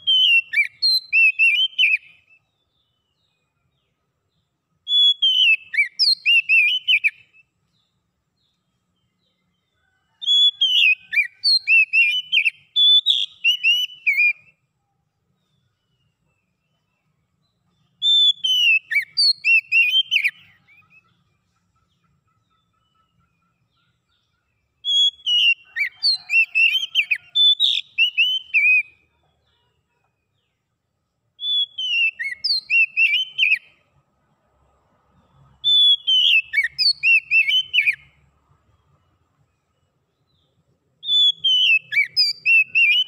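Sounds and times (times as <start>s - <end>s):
bird singing whistled phrases: 0.0s - 2.4s, 4.8s - 7.5s, 10.2s - 14.6s, 18.0s - 21.0s, 24.8s - 29.0s, 31.4s - 33.8s, 35.6s - 38.1s, 41.0s - 43.0s.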